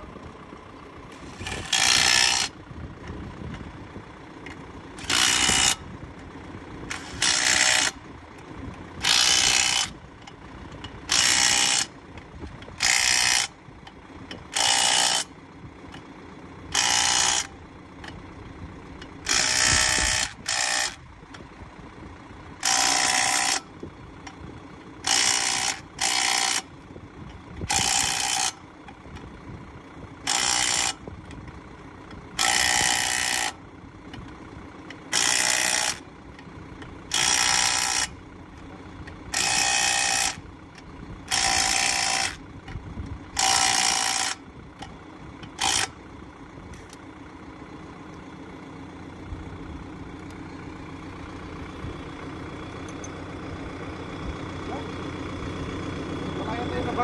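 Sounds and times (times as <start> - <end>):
impact wrench hammering lug nuts: 1.4 - 2.6, 5.0 - 5.8, 6.9 - 8.0, 9.0 - 12.0, 12.7 - 13.6, 14.3 - 15.3, 16.7 - 18.2, 19.0 - 21.0, 22.6 - 24.4, 25.0 - 26.7, 27.6 - 28.7, 30.3 - 31.1, 32.1 - 33.6, 35.0 - 36.1, 37.1 - 38.2, 39.0 - 46.0.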